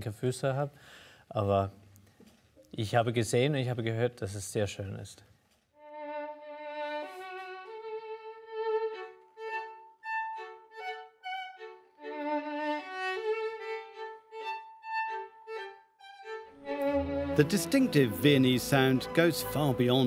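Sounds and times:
two violins playing a duet: 5.8s - 20.0s.

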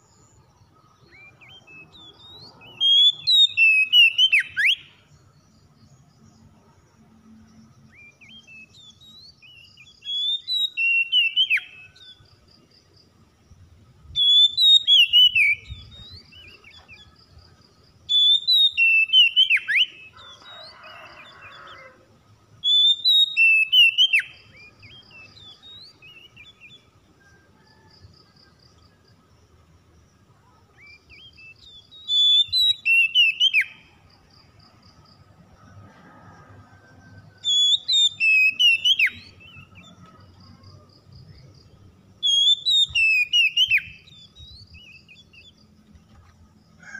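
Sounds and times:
bird singing whistles: 1.0s - 5.1s, 8.0s - 12.2s, 14.1s - 17.1s, 18.1s - 20.2s, 22.6s - 26.8s, 30.8s - 33.8s, 37.4s - 39.7s, 42.2s - 45.4s.

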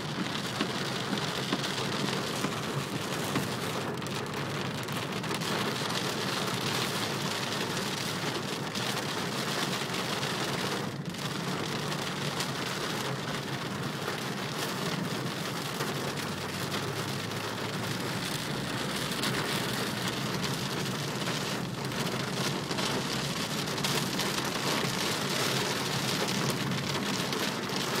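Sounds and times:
heavy rain on car windscreen: 0.0s - 28.0s.

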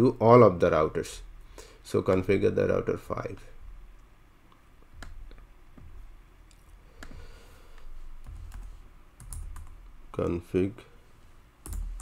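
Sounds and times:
computer keyboard keys clicking: 8.2s - 9.8s, 11.6s - 12.0s.

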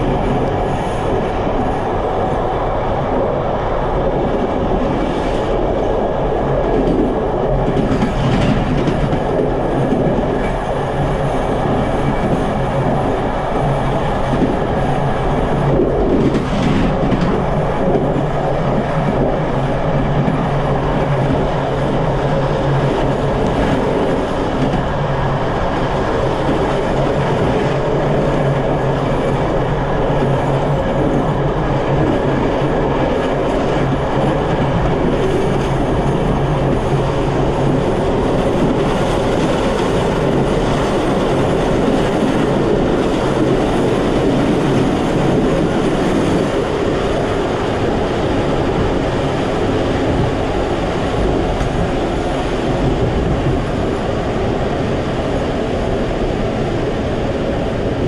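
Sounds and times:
train wheels rolling on rail: 0.0s - 58.0s.

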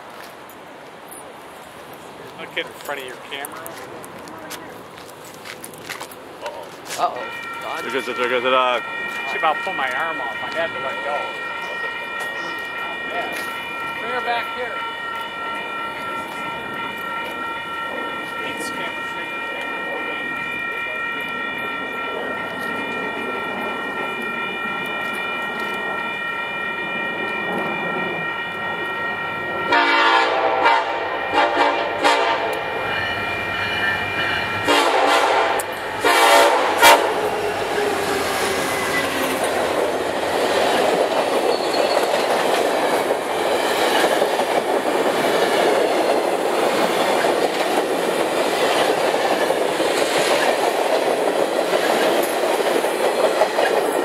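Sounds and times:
train wheels on rails: 0.0s - 54.0s
crossing signal bell ringing: 6.4s - 54.0s
locomotive horn blasts: 7.0s - 9.7s, 29.7s - 32.7s, 34.6s - 38.0s.

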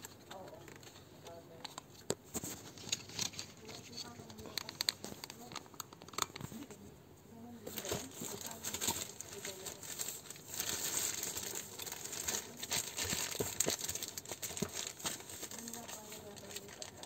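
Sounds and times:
plastic bag crinkling: 7.6s - 17.0s.

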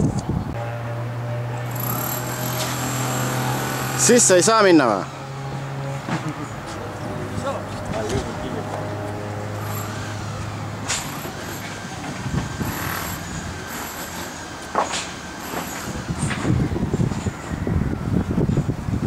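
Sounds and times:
wind rumbling on microphone: 0.0s - 0.6s, 10.4s - 13.8s, 15.8s - 19.0s
low engine hum: 0.0s - 19.0s.

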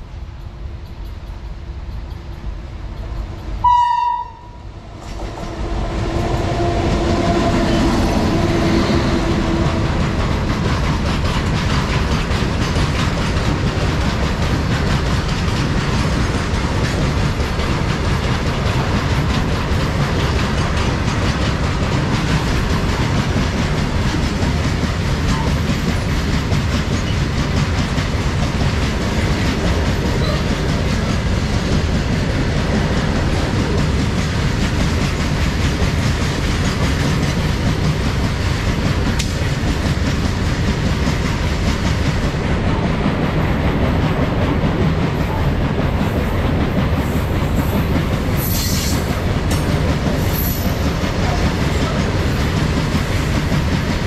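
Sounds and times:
freight train wheels on rails: 0.0s - 54.0s
train horn blast: 3.6s - 10.1s.

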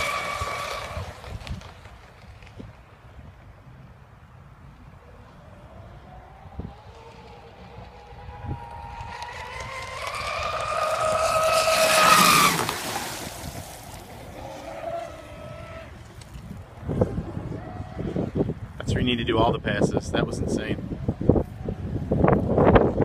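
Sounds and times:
electric motors whining: 5.3s - 13.0s.

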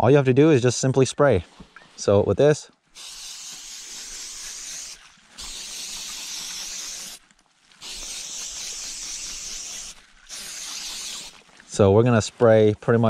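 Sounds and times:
aerosol spray hissing: 3.0s - 7.2s, 7.8s - 11.4s.

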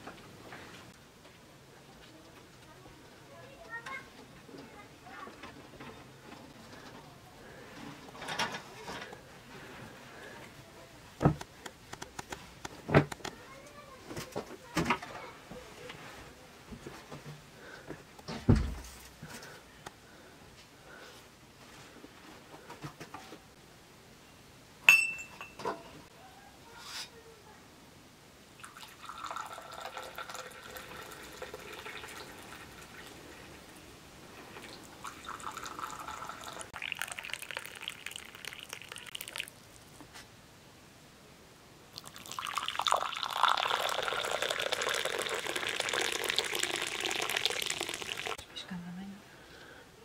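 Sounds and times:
porcelain clink: 24.9s - 25.7s
tea pouring into cups: 28.6s - 33.7s, 34.5s - 40.0s, 41.9s - 48.4s.

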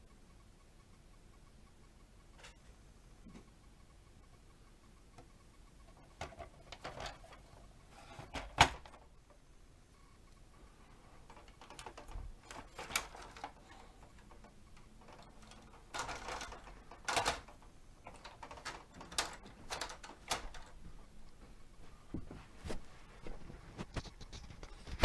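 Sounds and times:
toy ladder plastic clicks and rattles: 5.2s - 9.2s, 10.8s - 20.8s.

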